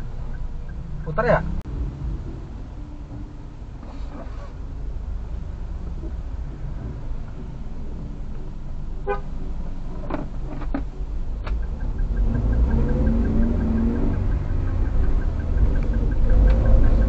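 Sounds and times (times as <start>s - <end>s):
car engine revving: 0.0s - 8.6s, 9.7s - 17.0s
fast even ticking: 11.5s - 17.0s.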